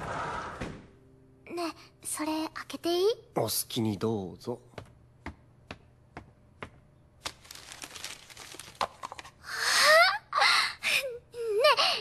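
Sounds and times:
wrapping paper crinkling: 7.2s - 9.4s.

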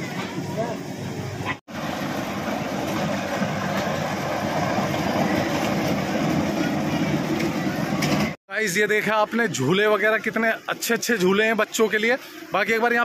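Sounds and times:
ride-on train running on track: 1.8s - 8.4s.

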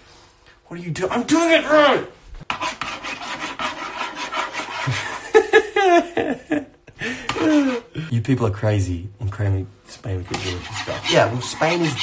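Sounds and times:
utensil scraping a pan: 2.4s - 5.3s, 10.3s - 12.0s
person laughing: 4.8s - 8.1s.

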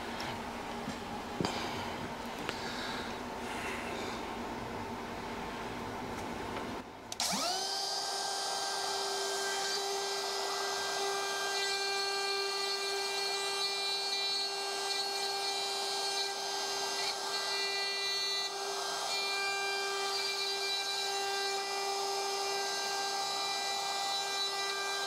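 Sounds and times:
router bit cutting wood: 7.2s - 25.0s
router motor whining: 7.2s - 25.0s.

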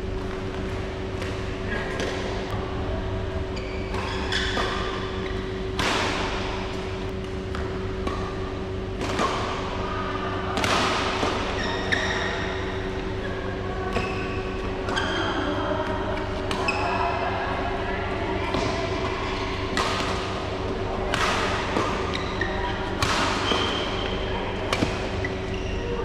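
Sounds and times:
steady hum: 0.0s - 26.0s
shoes squeaking on court: 3.5s - 5.8s, 11.3s - 13.3s, 21.5s - 26.0s
rackets hitting shuttlecock: 3.9s - 13.2s, 18.5s - 25.4s.

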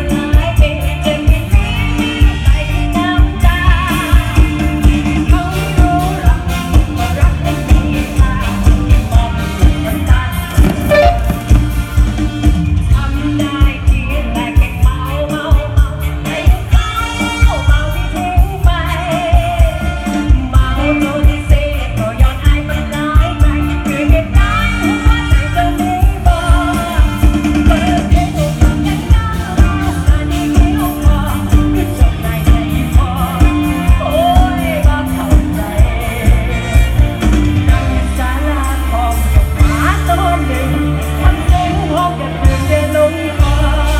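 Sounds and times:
live band over loudspeakers: 0.0s - 43.9s
steady drum beat: 5.9s - 12.9s.

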